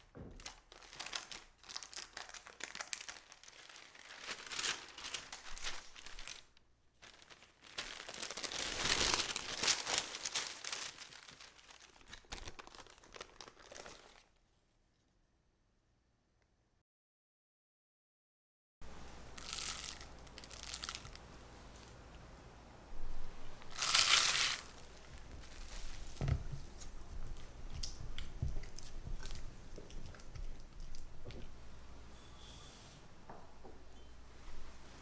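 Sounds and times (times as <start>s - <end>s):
packaging crinkling and tearing: 0.4s - 14.4s, 19.4s - 21.2s, 23.6s - 26.3s.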